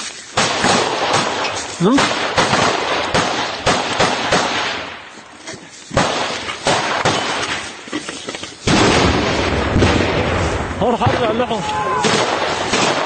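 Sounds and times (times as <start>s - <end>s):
gunfire cracks: 0.4s - 5.0s, 5.9s - 7.6s, 8.6s - 10.5s, 12.0s - 13.0s.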